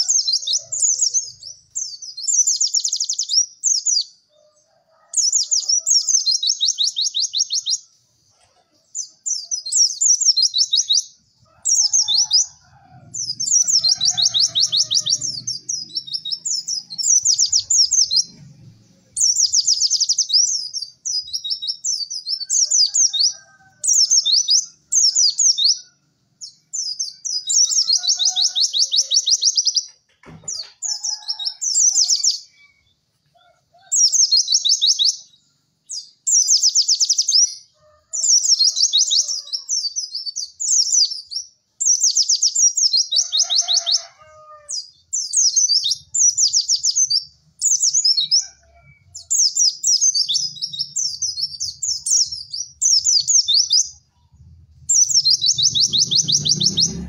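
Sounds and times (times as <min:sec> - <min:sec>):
bird chattering trills: 0:00.0 - 0:04.0, 0:05.2 - 0:18.4, 0:44.7 - 0:57.0.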